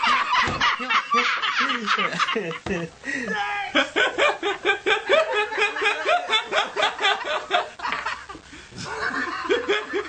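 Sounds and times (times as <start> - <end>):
person laughing in rapid bursts: 0.0 - 10.0.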